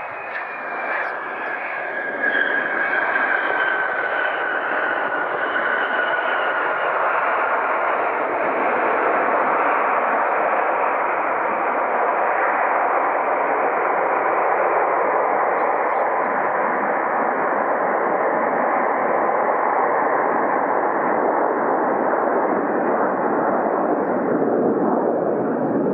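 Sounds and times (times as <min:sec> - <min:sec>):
loud jet engine roar: 0:00.0 - 0:25.9.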